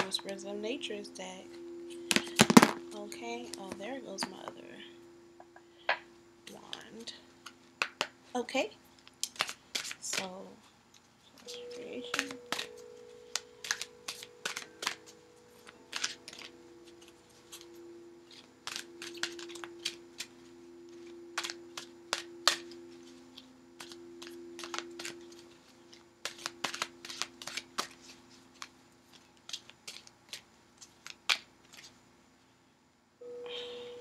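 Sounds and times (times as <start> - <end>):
cards being shuffled: 9.0 - 10.4, 11.0 - 17.7, 18.3 - 32.0.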